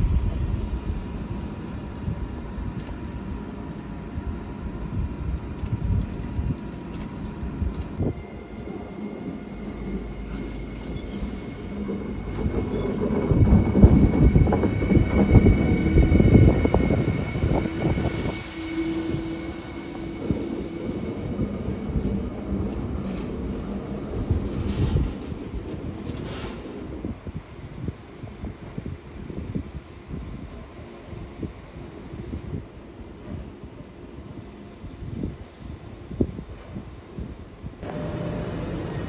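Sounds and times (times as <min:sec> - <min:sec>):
high-pitched squeal: 0:10.8 - 0:21.4.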